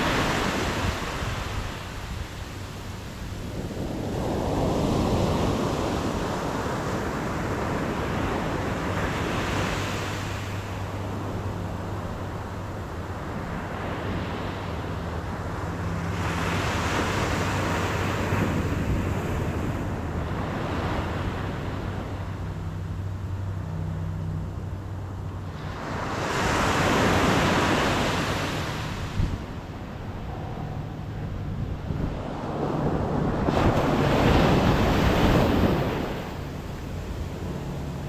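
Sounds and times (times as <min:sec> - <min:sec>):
waves breaking on beach: 0:00.0 - 0:22.6, 0:25.4 - 0:38.0
steady low hum: 0:27.3 - 0:38.0.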